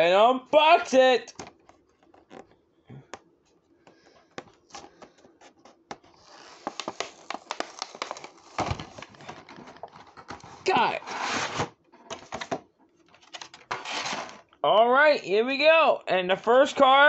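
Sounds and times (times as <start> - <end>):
packaging rustling and scratching: 4.0 - 14.5
packaging clicks and taps: 5.9 - 10.5.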